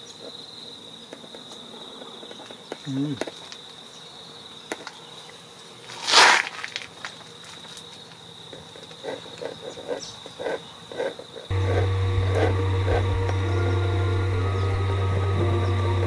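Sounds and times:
high insect trill: 0.0s - 16.0s
background music with low drone: 11.5s - 16.0s.

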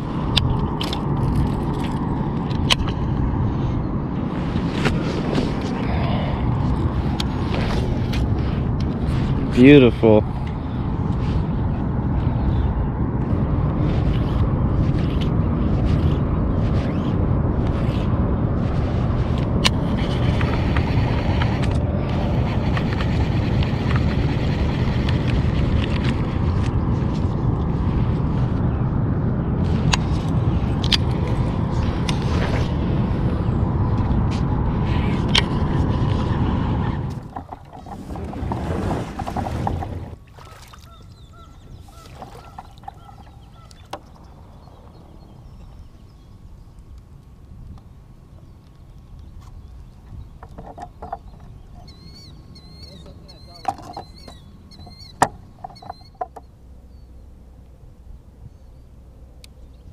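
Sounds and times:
low microphone rumble: 0.0s - 40.3s
kayak scraping on concrete: 35.8s - 40.2s
waterfowl honking: 40.4s - 43.9s.

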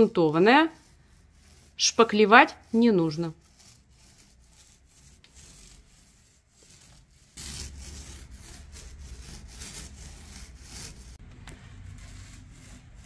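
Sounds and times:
paint roller rubbing: 0.0s - 13.0s.

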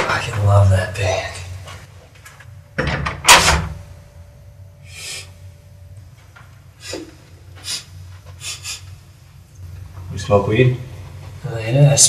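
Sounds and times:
door banging shut: 2.8s - 3.8s.

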